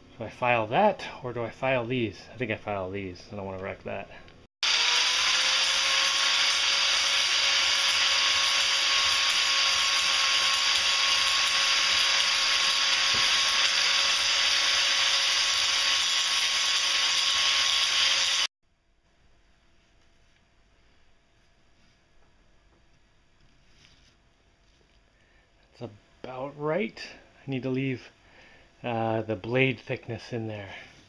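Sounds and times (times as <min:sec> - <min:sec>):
angle grinder whining: 0:04.6 - 0:18.5.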